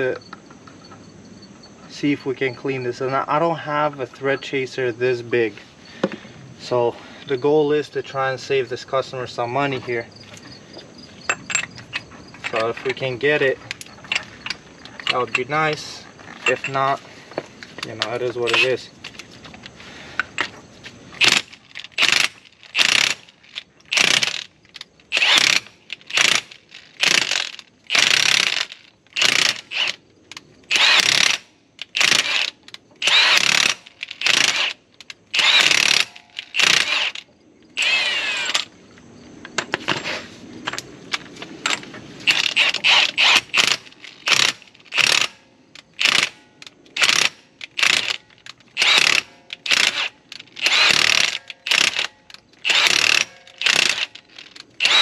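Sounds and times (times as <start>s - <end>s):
hand ratchet pawl clicking: 21.2s - 30.0s, 30.7s - 38.6s, 42.3s - 55.0s.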